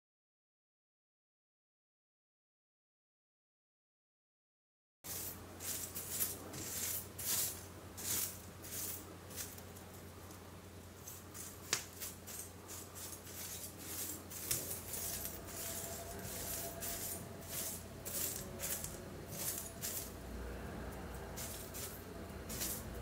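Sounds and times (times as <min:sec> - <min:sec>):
low steady hum: 0:05.1 - 0:23.0
granules scraping on tabletop: 0:11.0 - 0:20.2.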